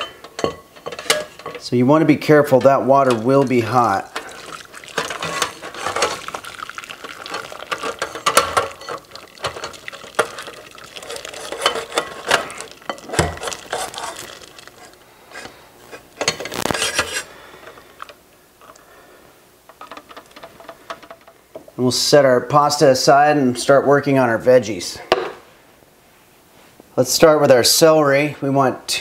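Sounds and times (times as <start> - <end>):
water pouring: 2.2 - 15.5.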